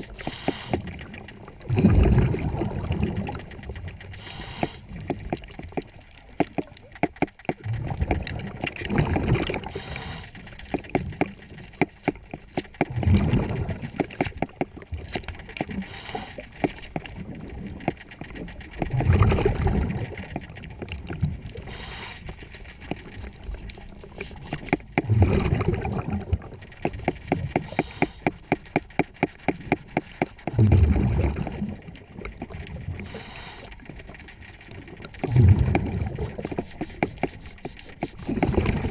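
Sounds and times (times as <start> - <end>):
bubbles rumbling underwater: 0.0 - 11.3, 12.8 - 16.1, 16.9 - 21.8, 22.8 - 27.8, 30.5 - 33.3, 33.9 - 36.5, 38.2 - 38.9
rapid even clicking: 26.6 - 31.5.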